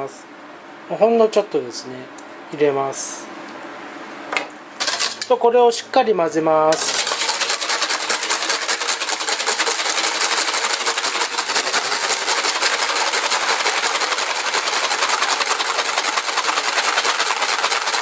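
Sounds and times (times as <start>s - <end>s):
whisk beating eggs in metal bowl: 4.8s - 5.4s, 6.7s - 18.0s.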